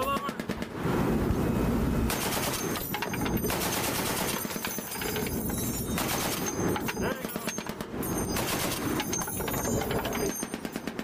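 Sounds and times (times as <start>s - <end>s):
heavy machine gun firing bursts: 2.1s - 5.0s, 5.9s - 11.0s.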